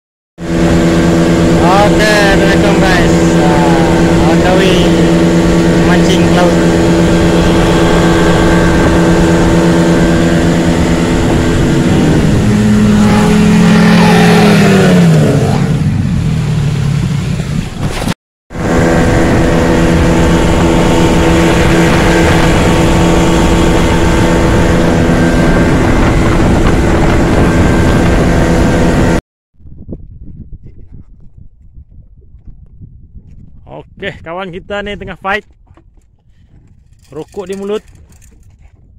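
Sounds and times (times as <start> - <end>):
outboard motor running: 0.4 - 29.2, 35.0 - 38.9
water rushing past hull: 0.4 - 29.2.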